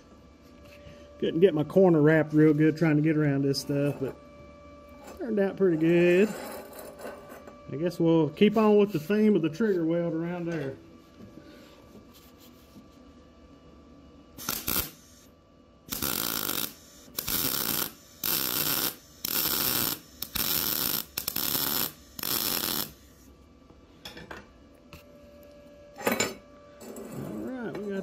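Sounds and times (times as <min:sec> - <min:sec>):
welding arc crackling: 0:14.4 - 0:15.3, 0:15.9 - 0:23.2.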